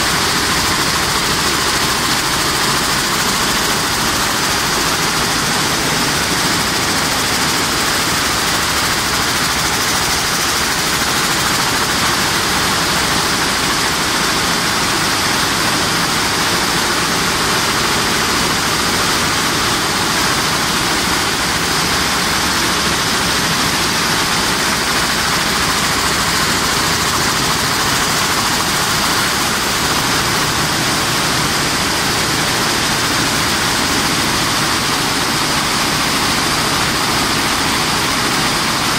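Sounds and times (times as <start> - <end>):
weaving looms running: 0.0 - 38.9.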